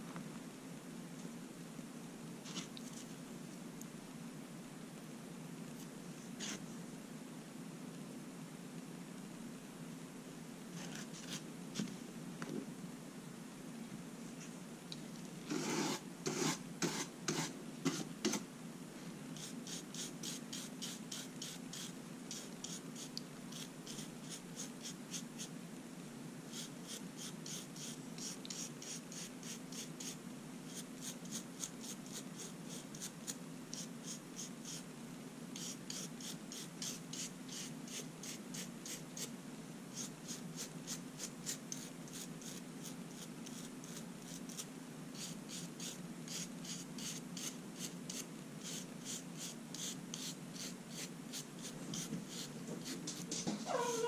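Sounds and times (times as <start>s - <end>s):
nail file filing fingernails: 19.4s - 25.2s, 26.5s - 34.8s, 35.6s - 39.3s, 40.0s - 53.3s.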